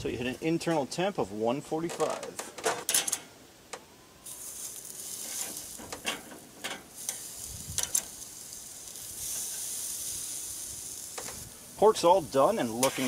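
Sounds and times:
metal tongs clanking on grill: 2.8s - 3.3s, 4.3s - 11.4s, 12.6s - 13.0s
meat sizzling over charcoal: 4.2s - 13.0s.

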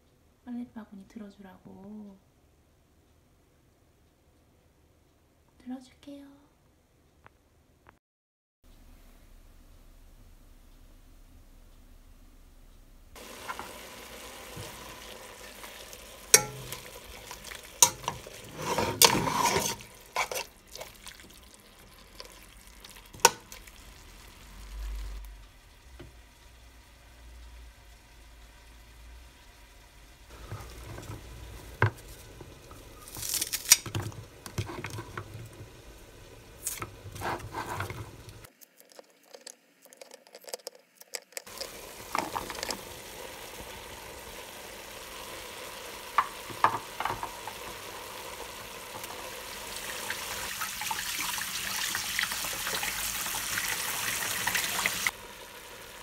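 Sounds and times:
meat sizzling in a frying pan: 13.2s - 38.5s, 41.5s - 56.0s
utensils clicking and clattering: 16.3s - 20.9s.

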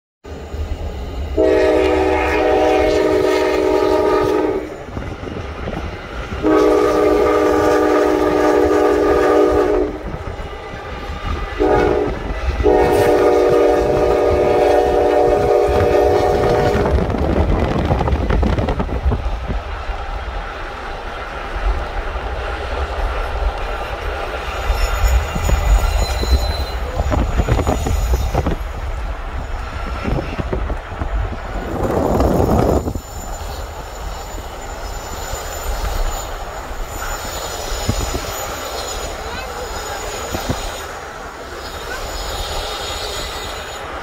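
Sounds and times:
locomotive air horn blasts: 1.4s - 4.8s, 6.4s - 10.2s, 11.4s - 17.0s.

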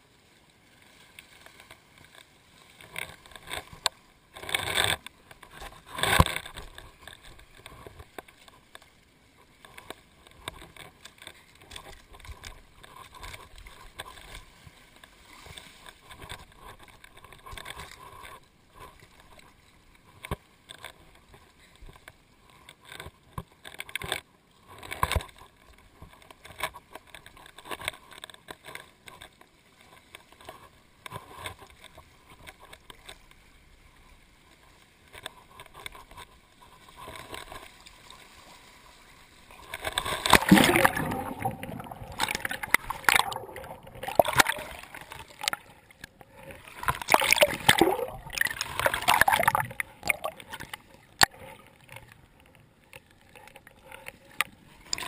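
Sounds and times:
waves splashing on rocks: 40.2s - 45.8s.

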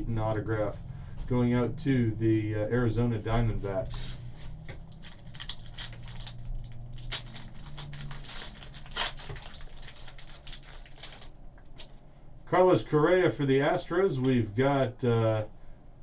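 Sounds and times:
low steady hum: 0.0s - 16.0s
foil wrapper crinkling: 3.9s - 11.9s.

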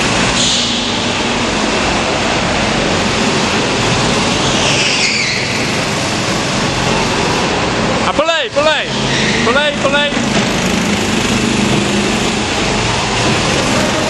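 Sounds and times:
kart engines droning: 0.0s - 14.0s
brief high squeal: 0.4s - 0.9s, 4.4s - 5.7s, 9.0s - 9.5s.

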